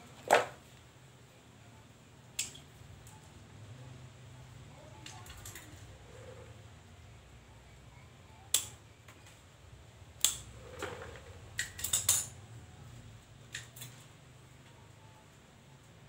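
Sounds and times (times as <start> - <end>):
metal clicks and clinks: 11.6 - 12.4.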